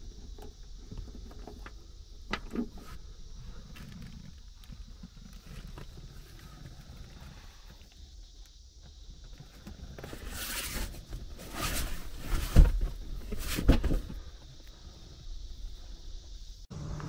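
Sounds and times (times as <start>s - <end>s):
handling rustling and rubbing: 9.2s - 14.4s.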